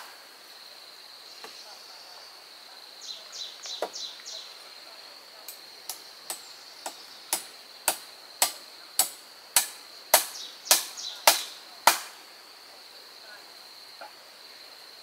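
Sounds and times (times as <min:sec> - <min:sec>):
high insect drone: 0:00.0 - 0:15.0
tool striking wood: 0:06.3 - 0:12.2.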